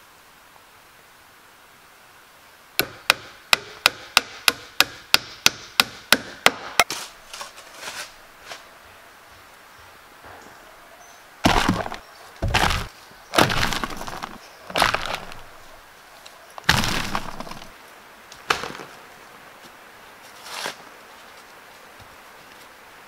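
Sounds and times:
soil dumped onto roofing sheet: 0:11.4 - 0:15.5.

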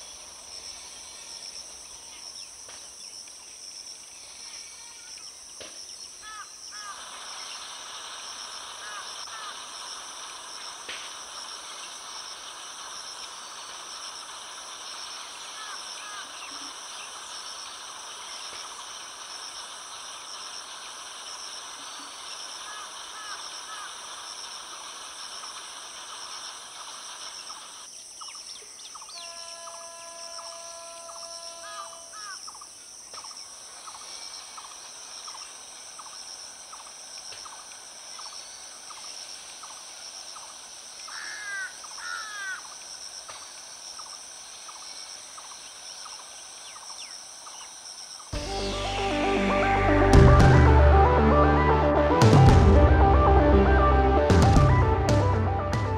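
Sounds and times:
pulsing insect drone: 0:00.0 - 0:55.7
birds calling: 0:05.1 - 0:24.4, 0:26.3 - 0:39.8, 0:40.4 - 0:50.1.

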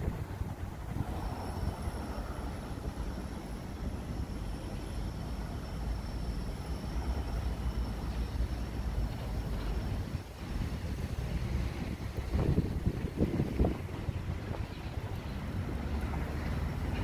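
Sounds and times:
wind buffeting microphone: 0:00.0 - 0:04.4, 0:09.0 - 0:17.0.

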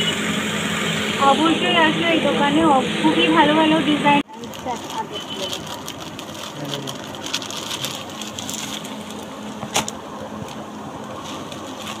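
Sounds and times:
steady low hum: 0:00.0 - 0:04.8
plastic packaging crinkling: 0:04.3 - 0:09.3, 0:11.1 - 0:12.0.

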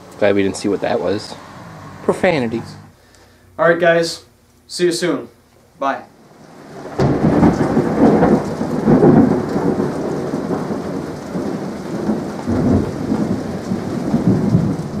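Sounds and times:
rumbling crackling noise: 0:06.2 - 0:15.0.

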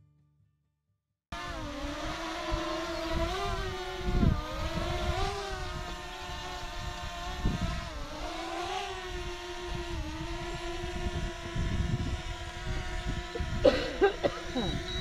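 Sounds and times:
drone propellers whining: 0:01.4 - 0:15.0
wind rumble on microphone: 0:01.4 - 0:15.0.

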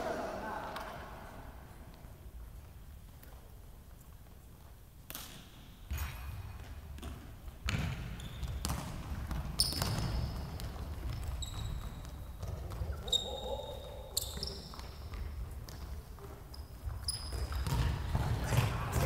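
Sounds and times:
ball kicked and bouncing: 0:05.1 - 0:13.0, 0:14.7 - 0:19.0
sneaker squeaks on floor: 0:07.7 - 0:15.4, 0:16.2 - 0:18.1.

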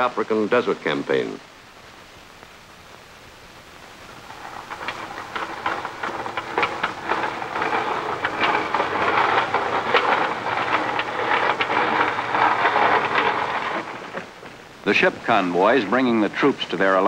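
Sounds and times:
anchor chain clanking: 0:04.2 - 0:14.6.

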